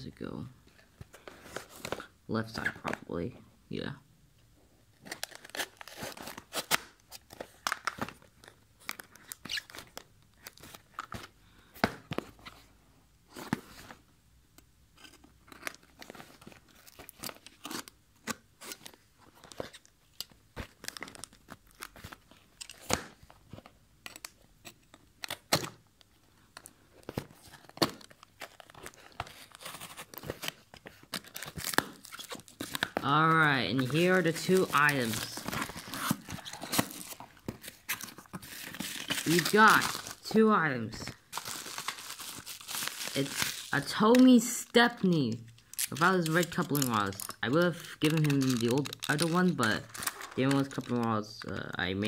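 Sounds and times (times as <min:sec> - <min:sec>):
tape tearing: 0:05.0 - 0:08.1, 0:08.9 - 0:11.2, 0:15.0 - 0:19.9, 0:20.6 - 0:25.8, 0:26.6 - 0:40.4, 0:41.0 - 0:44.4, 0:45.5 - 0:51.0
cardboard crackling and scraping: 0:27.0 - 0:40.4.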